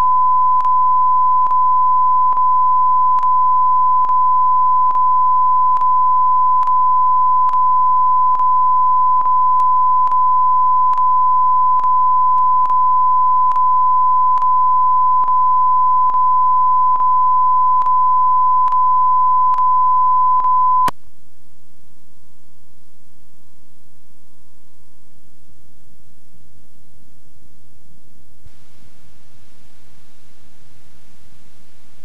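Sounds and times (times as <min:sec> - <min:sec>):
electronic test tone: 0:00.0 - 0:20.9
clicks: 0:00.5 - 0:00.8, 0:02.3 - 0:02.5, 0:03.1 - 0:03.4, 0:04.0 - 0:04.2, 0:05.7 - 0:06.0, 0:07.4 - 0:07.7, 0:08.3 - 0:10.3, 0:10.9 - 0:11.2, 0:11.8 - 0:14.6, 0:15.2 - 0:16.3, 0:17.8 - 0:18.0, 0:18.6 - 0:19.8
blank tape hiss: 0:20.4 - 0:32.0.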